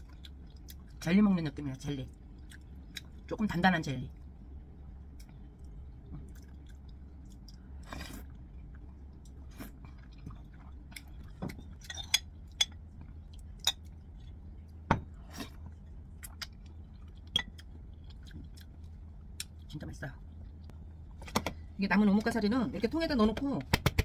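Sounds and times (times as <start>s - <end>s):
chewing jelly: 2.0s - 3.3s, 5.1s - 14.8s, 15.5s - 20.8s.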